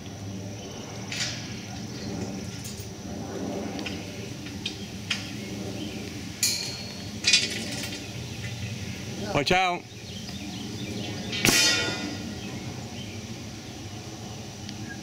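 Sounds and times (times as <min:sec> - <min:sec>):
metal clinks and knocks: 0:02.0 - 0:02.9, 0:06.4 - 0:08.0.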